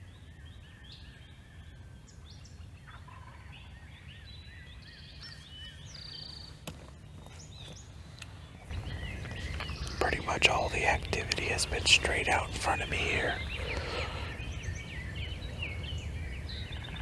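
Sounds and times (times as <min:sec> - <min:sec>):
songbirds chirping: 0:00.0 - 0:17.0
turkey gobbling: 0:02.8 - 0:03.8.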